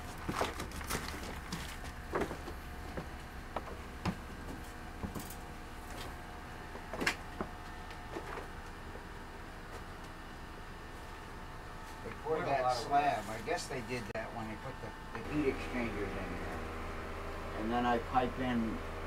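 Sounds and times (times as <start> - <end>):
steady low hum: 0.0 - 19.0
faint steady tones: 10.6 - 18.8.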